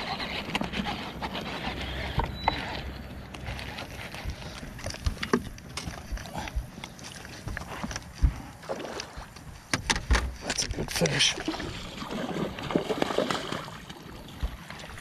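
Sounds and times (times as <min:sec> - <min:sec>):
knocks and clicks on boat deck: 0:09.2 - 0:10.7.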